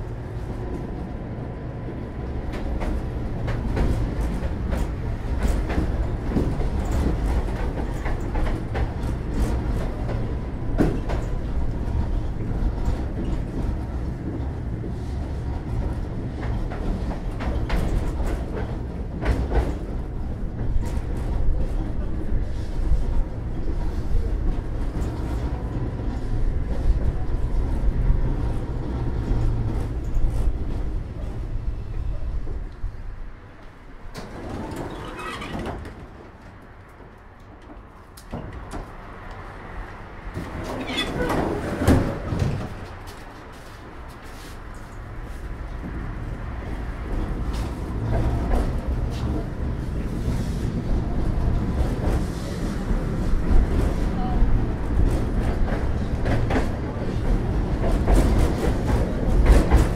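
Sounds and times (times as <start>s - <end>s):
tram low rumble: 0.0s - 59.9s.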